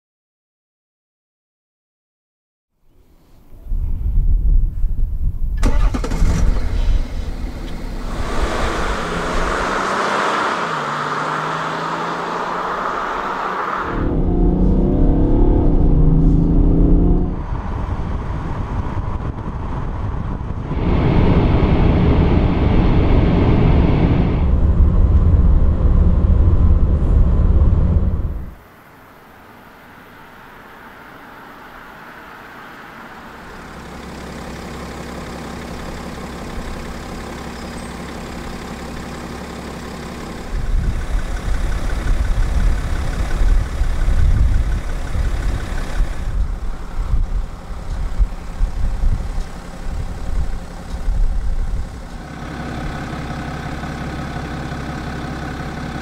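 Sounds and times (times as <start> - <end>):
diesel engine from inside car: 5.6 - 21.8, 22.5 - 28.6, 33.0 - 56.0.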